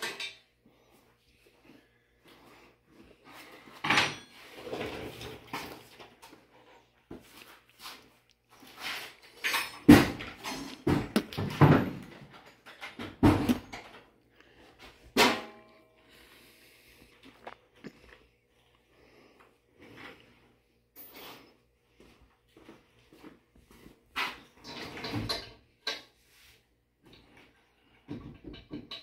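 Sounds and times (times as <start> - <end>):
metal tools clattering in drawer: 0.0 - 0.5, 3.8 - 6.2, 8.8 - 14.1, 24.3 - 26.1.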